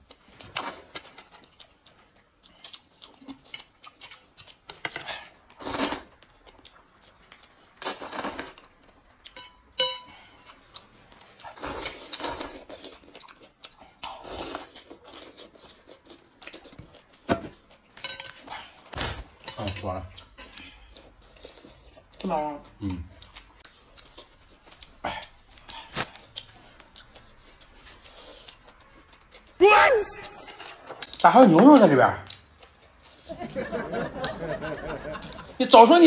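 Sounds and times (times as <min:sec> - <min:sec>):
chopsticks clinking metal bowl: 0:09.3 - 0:10.2, 0:18.0 - 0:18.4.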